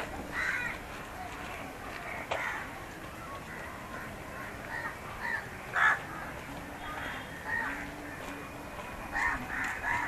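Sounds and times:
crows cawing: 0.3 - 0.8, 2.1 - 2.7, 3.5 - 7.9, 9.1 - 10.0.

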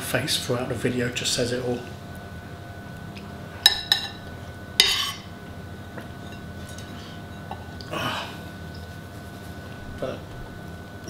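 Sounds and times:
metal spoon clinking against bowl: 3.7 - 4.2.

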